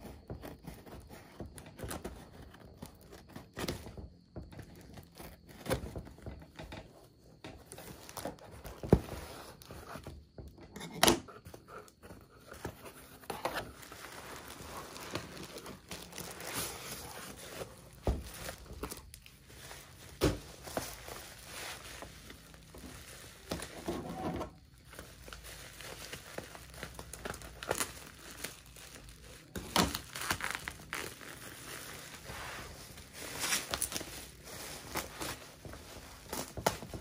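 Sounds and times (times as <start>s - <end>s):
plastic wrap crinkling: 11.8s - 37.0s
tape tearing: 24.9s - 37.0s.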